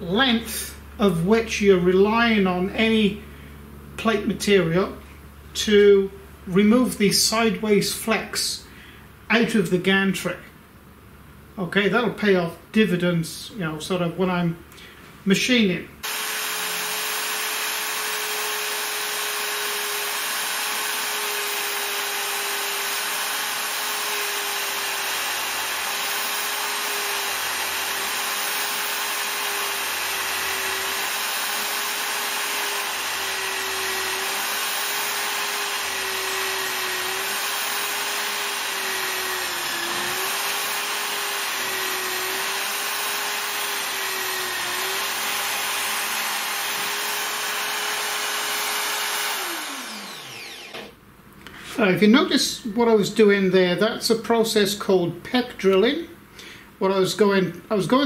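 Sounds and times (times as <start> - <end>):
electric drill drilling metal: 16.0 - 51.0.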